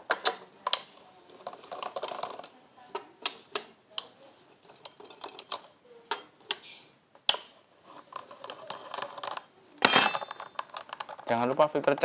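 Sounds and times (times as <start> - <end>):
metallic clinks of tools: 9.8 - 11.1.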